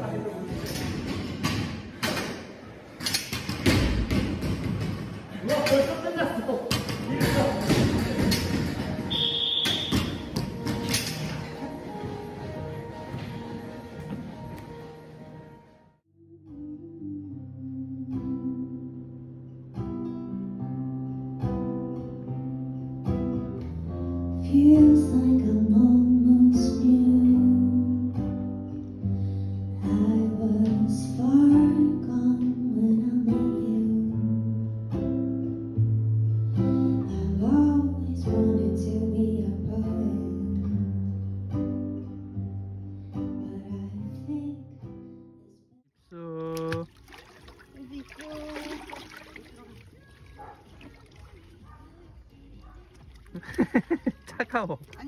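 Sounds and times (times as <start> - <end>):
acoustic guitar: 16.3 - 55.0.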